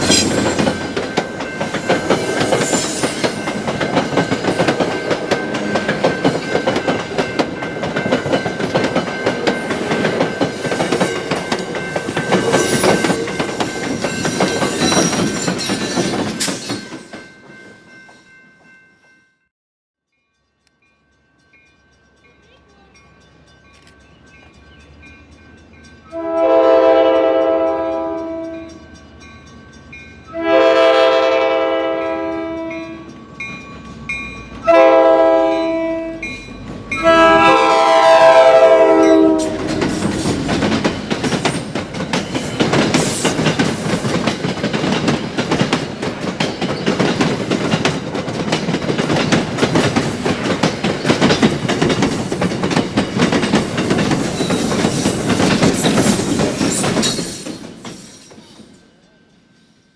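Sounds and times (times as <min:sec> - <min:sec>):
train wheels rumbling on rails: 0:00.0 - 0:18.8, 0:22.0 - 0:59.4
train horn: 0:26.1 - 0:28.7, 0:30.3 - 0:33.1, 0:34.6 - 0:36.3, 0:37.0 - 0:40.4.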